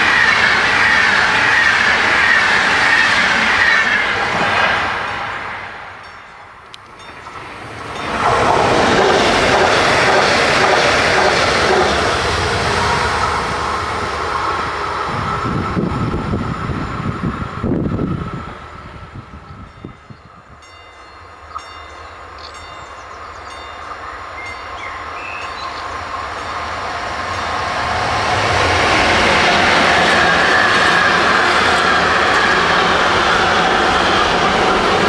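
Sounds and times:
freight train passing: 0.0 - 35.0.

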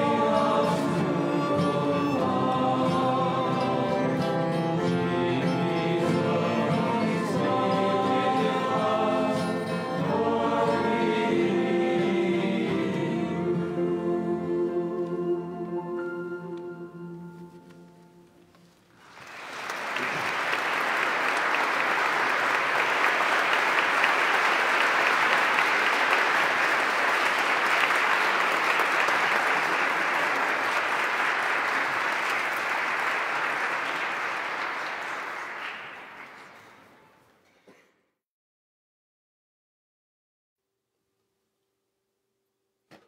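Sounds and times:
choir and strings chord: 0.0 - 18.3
audience applauding: 18.9 - 37.2.

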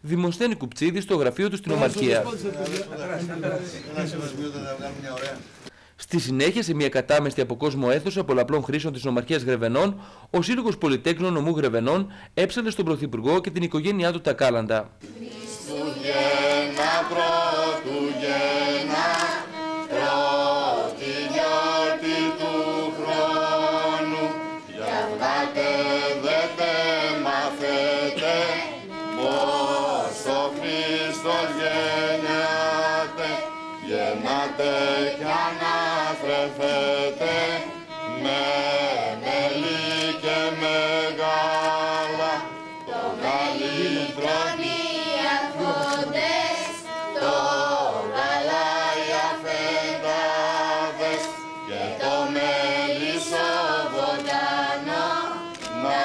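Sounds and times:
children's choir singing carols: 15.0 - 56.0
violin accompaniment: 15.0 - 56.0.

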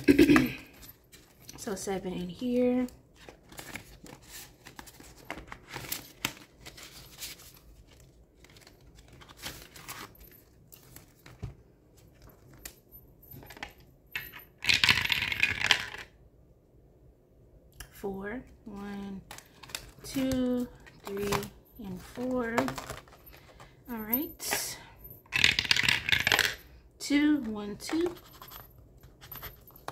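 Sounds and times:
paper bills rustling: 3.2 - 11.5.

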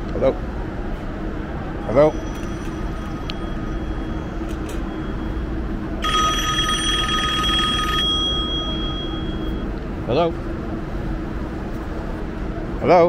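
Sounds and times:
steady background hum: 0.0 - 13.0
telephone ringing: 2.0 - 9.7.

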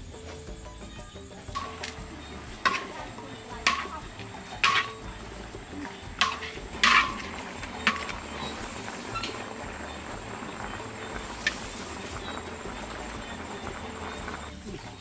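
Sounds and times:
metal utensil clanking on pot: 1.5 - 14.5.

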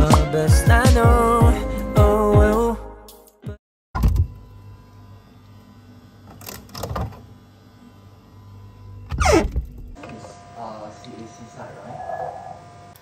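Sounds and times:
refrigerator humming: 4.0 - 13.0.

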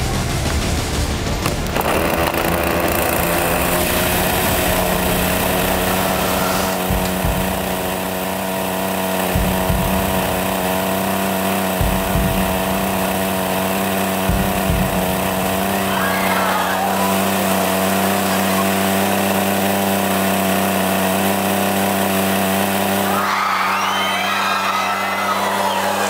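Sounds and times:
chainsaw idling: 0.0 - 26.0
low thuds: 4.6 - 8.0, 9.3 - 10.6, 11.7 - 13.2, 14.1 - 15.6.

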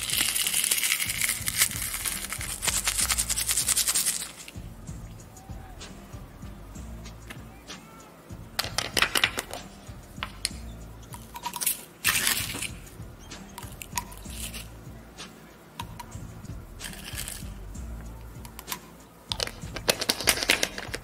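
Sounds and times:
sand pouring into bottle: 0.0 - 4.6, 16.8 - 17.5
quiet background music: 0.0 - 21.0
cups and bottle clicking on tray: 15.8 - 16.1, 18.4 - 21.0.

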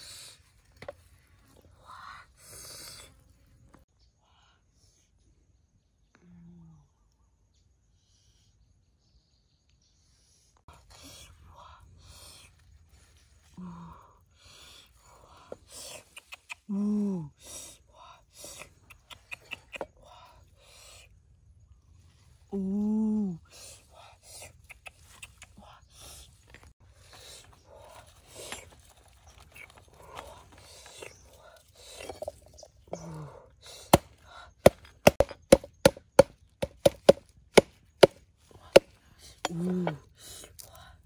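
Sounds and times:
knife chopping on wooden block: 33.9 - 38.2.

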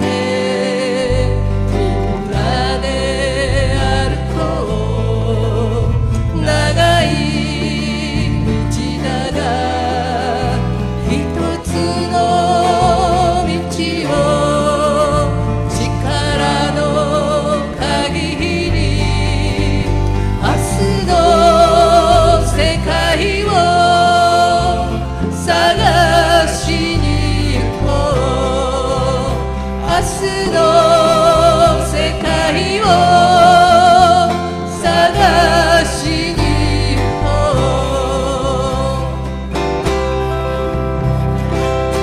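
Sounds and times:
woman singing with vibrato: 0.0 - 39.4
electric bass: 0.0 - 42.0
strummed acoustic guitars: 0.0 - 42.0
band members singing along: 6.3 - 39.3.

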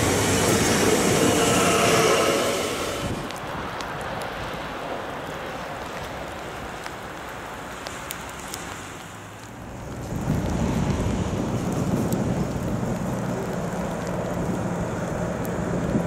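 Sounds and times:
approaching train rumble: 0.0 - 3.5
wind and drizzle hissing: 0.0 - 16.0.

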